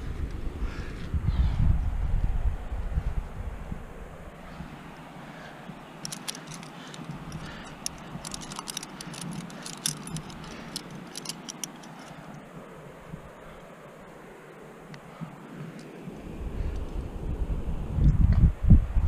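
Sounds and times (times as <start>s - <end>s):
metal climbing gear clinking: 5.8s - 12.5s.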